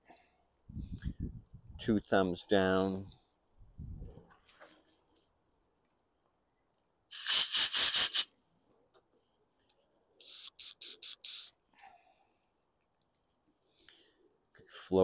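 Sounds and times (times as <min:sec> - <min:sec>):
compressed air blow gun hissing: 0:07.1 - 0:08.3, 0:10.2 - 0:11.5.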